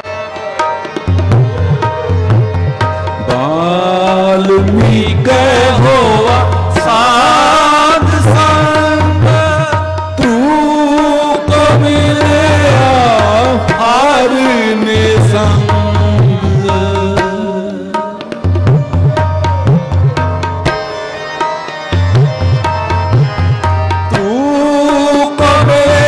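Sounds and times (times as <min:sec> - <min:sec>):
harmonium: 0:00.0 - 0:26.0
tabla beat: 0:00.0 - 0:26.0
person singing ornamented melody: 0:03.3 - 0:18.4, 0:24.2 - 0:26.0.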